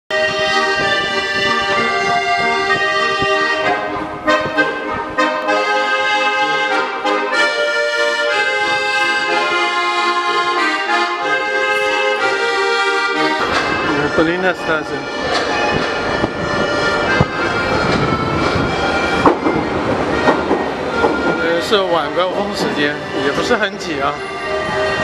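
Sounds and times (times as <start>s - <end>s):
button accordion folk tune: 0.1s - 25.0s.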